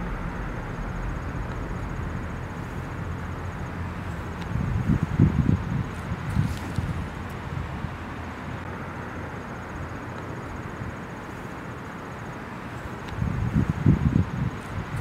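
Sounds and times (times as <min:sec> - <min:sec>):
wind gusts on microphone: 0:00.0 - 0:08.7, 0:13.1 - 0:15.0
steady rushing noise: 0:00.0 - 0:15.0.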